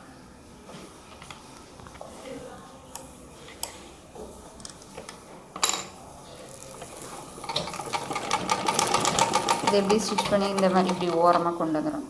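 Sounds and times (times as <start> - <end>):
sewing machine stitching: 6.7 - 11.6
sewing machine clicks: 6.8 - 11.5.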